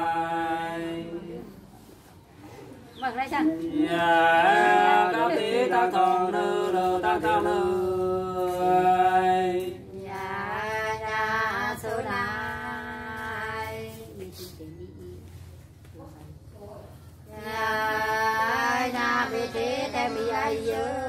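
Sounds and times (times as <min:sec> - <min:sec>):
unaccompanied folk singing: 0:00.0 - 0:02.0, 0:03.0 - 0:15.2, 0:17.1 - 0:21.0.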